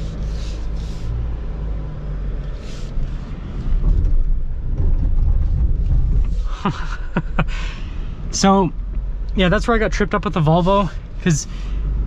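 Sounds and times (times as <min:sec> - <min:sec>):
car engine and tyres rumbling: 0:00.0 - 0:12.0.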